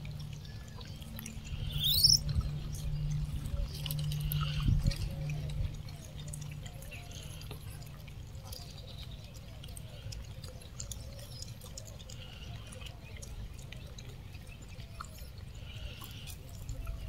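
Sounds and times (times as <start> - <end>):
low rumble: 0.0 - 8.0
soft chirp-like calls: 0.7 - 2.8.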